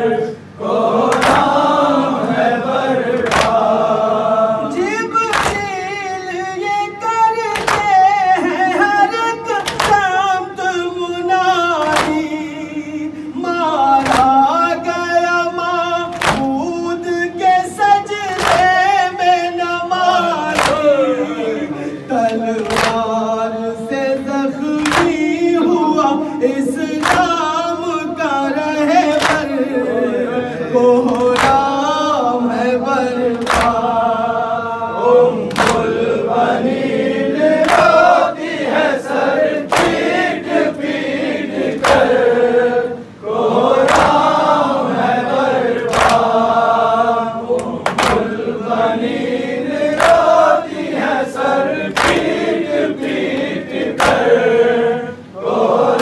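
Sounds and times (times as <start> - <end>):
group of men singing: 0.0 - 56.0
chest-beating slaps: 1.1 - 1.6, 3.2 - 3.6, 5.3 - 5.7, 7.6 - 7.9, 9.6 - 10.1, 11.8 - 12.3, 14.0 - 14.4, 16.1 - 16.6, 20.5 - 20.9, 22.6 - 23.0, 24.8 - 25.2, 29.2 - 29.5, 31.1 - 31.7, 33.3 - 33.9, 35.5 - 36.0, 37.6 - 38.0, 39.7 - 41.0, 41.7 - 42.2, 43.8 - 44.3, 45.8 - 46.4, 47.5 - 48.4, 50.0 - 50.3, 51.9 - 54.3
man chanting into microphone: 2.2 - 36.2.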